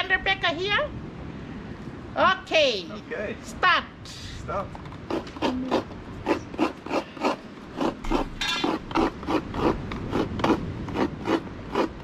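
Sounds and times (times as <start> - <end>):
coconut grating on scraper: 4.8 - 12.0.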